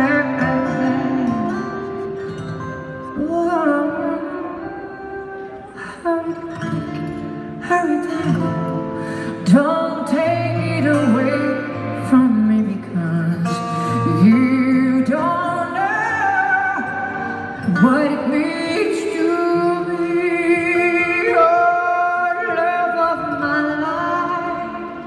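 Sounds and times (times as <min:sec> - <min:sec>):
woman singing into microphone: 0:00.0 - 0:02.2, 0:03.0 - 0:25.0
acoustic guitar: 0:00.0 - 0:25.0.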